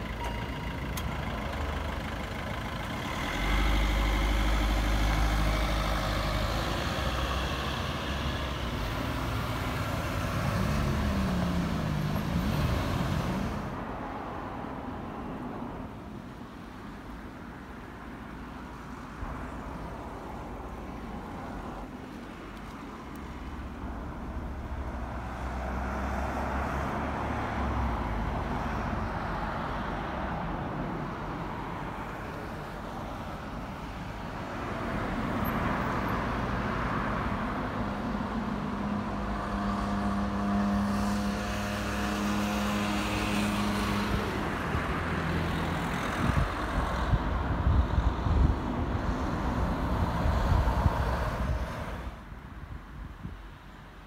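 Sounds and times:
vehicle engine drone: 0.0s - 13.8s
cars passing: 0.0s - 54.0s.

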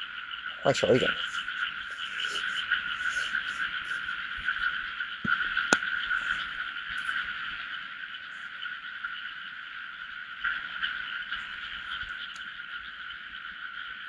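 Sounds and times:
frogs trilling: 0.0s - 14.0s.

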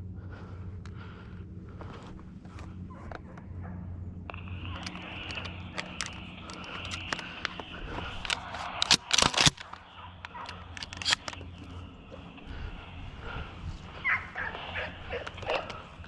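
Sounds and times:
footsteps crunching dry grass: 0.4s - 3.5s, 9.7s - 16.0s
clicks and rustles: 4.2s - 12.6s.

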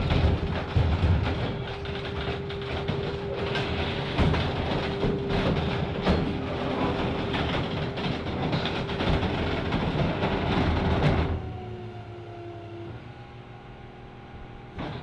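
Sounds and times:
steel frame creaking and cracking: 0.0s - 11.3s
hydraulic power unit humming: 0.0s - 15.0s.

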